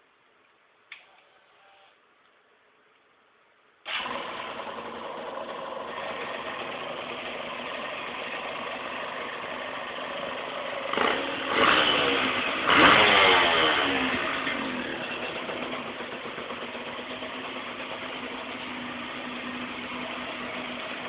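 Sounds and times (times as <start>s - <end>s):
two-stroke engine idling: 3.9s - 21.0s
engine revving: 9.8s - 18.0s.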